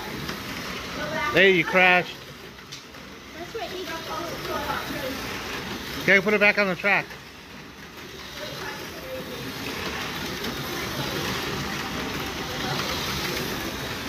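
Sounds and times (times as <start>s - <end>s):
slot car motors whirring: 0.0s - 14.0s.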